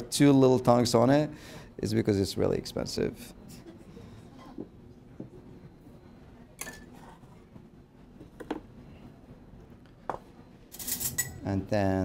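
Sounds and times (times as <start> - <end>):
utensil clinking against dishes: 6.6 - 7.0, 10.1 - 11.4.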